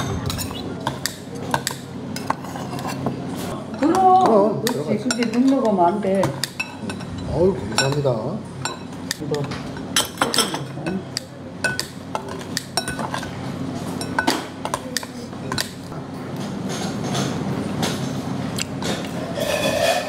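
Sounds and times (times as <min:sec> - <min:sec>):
metal spoon scraping ceramic bowl: 0:19.2 - 0:20.0.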